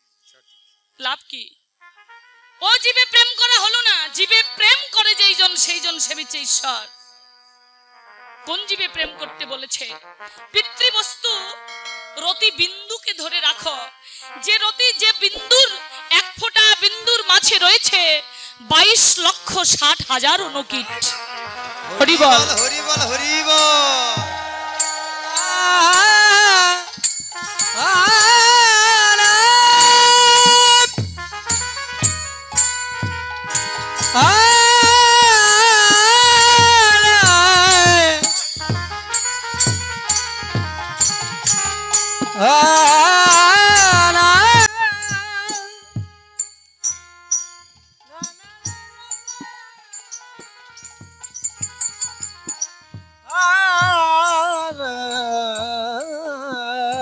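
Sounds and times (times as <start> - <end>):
cymbal clatter: 11.5 - 12.4, 29.2 - 52.9
held melody notes: 20.2 - 46.4
drum strokes with falling tone: 20.9 - 46.4.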